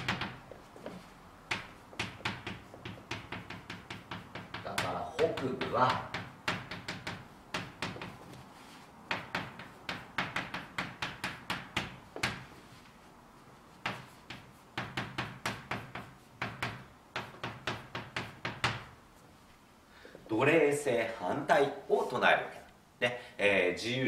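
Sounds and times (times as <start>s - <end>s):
chalk tapping on blackboard: 0.0s - 19.0s.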